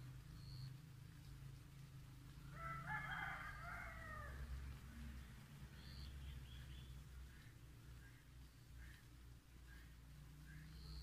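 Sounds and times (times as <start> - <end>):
faint high chirps: 0.2 - 0.9
rooster crowing: 2.5 - 4.5.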